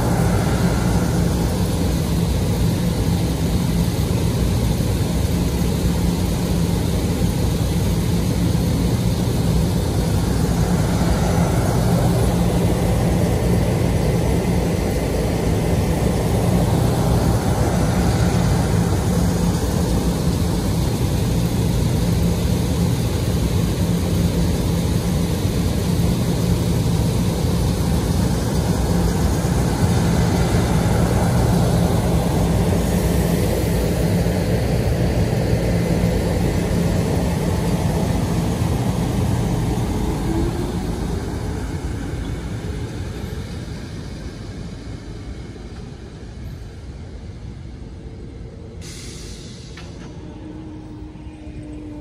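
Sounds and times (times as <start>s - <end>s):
electric train hum: 0.0s - 52.0s
wheel and track rumble: 0.0s - 52.0s.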